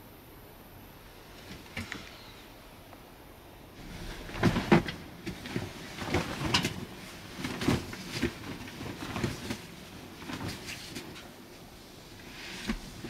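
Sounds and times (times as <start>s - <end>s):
rustling of thick garment: 3.8s - 13.0s.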